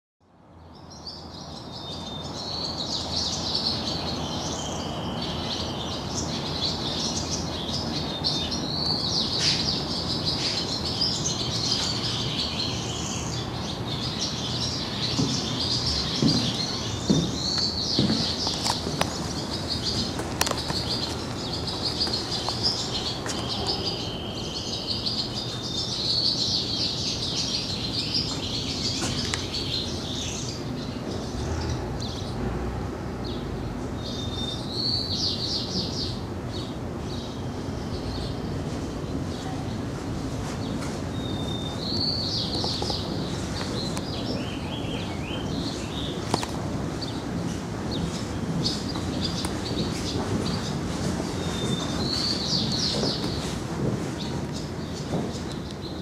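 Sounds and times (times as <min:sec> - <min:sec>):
small birds chirping: 0:00.6 - 0:32.5, 0:33.2 - 0:56.0
soft knocks: 0:16.2 - 0:19.2.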